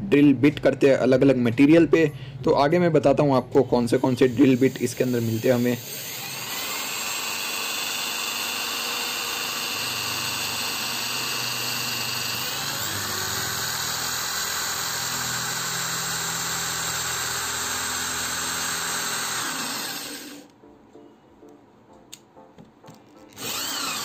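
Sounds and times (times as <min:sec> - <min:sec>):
drill boring into wood: 0:04.2 - 0:20.5, 0:23.4 - 0:24.0.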